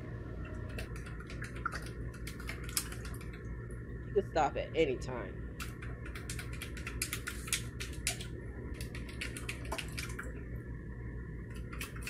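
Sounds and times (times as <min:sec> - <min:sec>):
cat lapping wet clicks: 0:00.8 - 0:03.4, 0:05.6 - 0:10.3.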